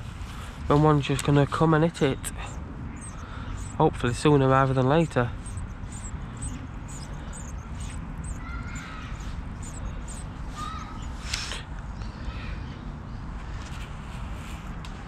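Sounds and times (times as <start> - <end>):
steady low rumble: 0.0 - 11.3.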